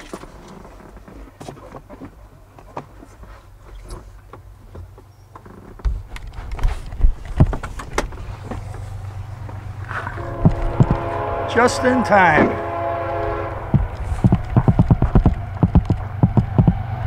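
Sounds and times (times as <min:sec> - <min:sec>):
low steady hum: 0:04.4 - 0:17.0
thumps against microphone: 0:05.8 - 0:08.8, 0:10.4 - 0:11.0, 0:13.7 - 0:16.8.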